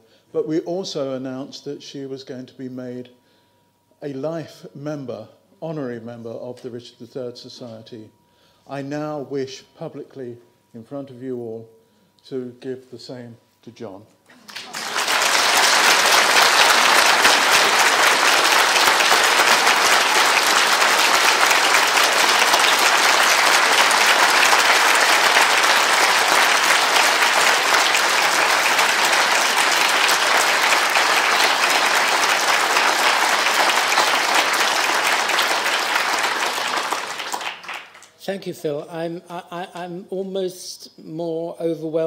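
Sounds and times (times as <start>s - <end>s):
audience applauding: 14.3s - 38.2s.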